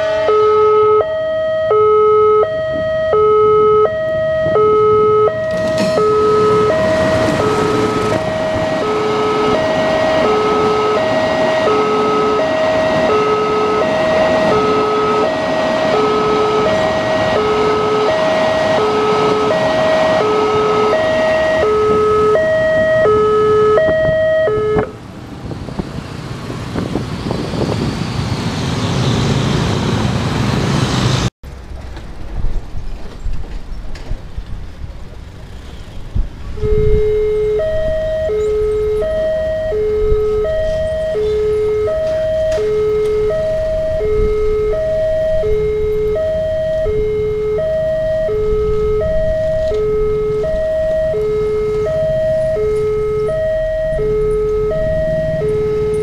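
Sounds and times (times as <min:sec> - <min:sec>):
two-tone warning chime: 0:00.0 - 0:25.0, 0:36.6 - 0:56.0
train wheels rolling on rails: 0:05.3 - 0:23.1, 0:24.9 - 0:37.0, 0:40.1 - 0:44.6.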